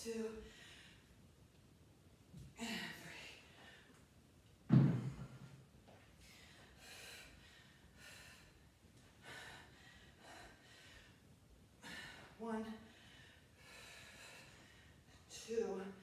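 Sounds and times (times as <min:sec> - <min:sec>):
woman breathing heavily: 0:00.3 - 0:01.2, 0:02.5 - 0:04.1, 0:05.0 - 0:16.0
dumbbells thudding on rubber floor: 0:04.7 - 0:05.6.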